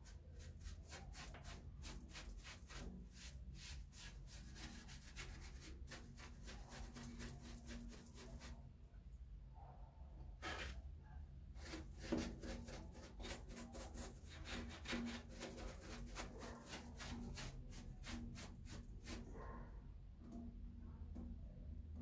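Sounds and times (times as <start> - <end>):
brush dabbing strokes: 0.0 - 8.6, 10.4 - 10.9, 11.6 - 19.6.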